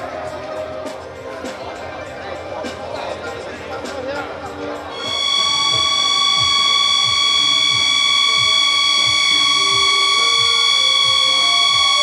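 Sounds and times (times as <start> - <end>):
high held note over melody: 4.9 - 12.0.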